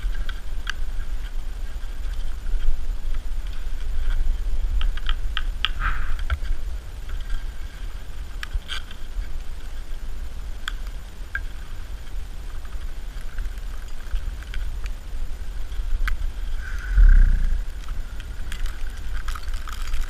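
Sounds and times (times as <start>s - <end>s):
wind buffeting microphone: 16.5s - 18.6s.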